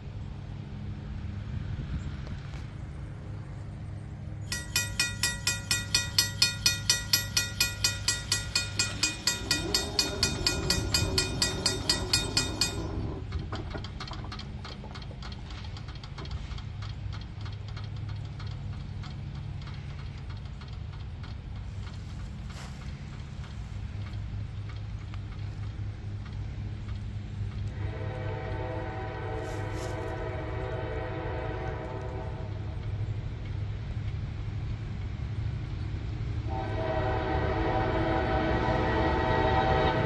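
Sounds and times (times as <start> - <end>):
diesel locomotive engine rumble: 0.0 - 40.0
mechanical crossing bell ringing: 4.5 - 13.0.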